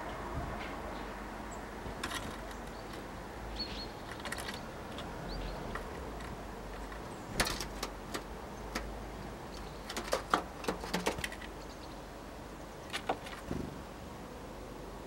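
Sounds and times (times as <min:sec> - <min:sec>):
birds tapping on wood: 0:01.8 - 0:12.0, 0:12.7 - 0:13.9.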